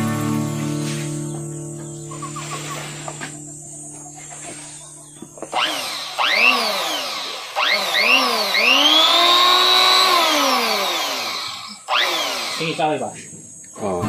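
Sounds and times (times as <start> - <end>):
electric hand planer motor whining: 5.2 - 12.9.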